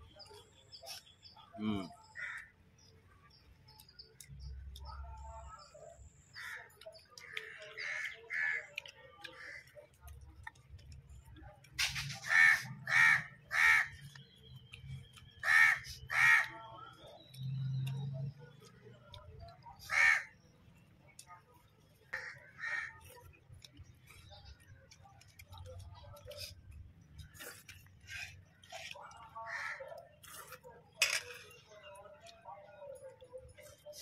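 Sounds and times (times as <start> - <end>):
crow cawing: 15.4 - 16.5, 19.9 - 20.3.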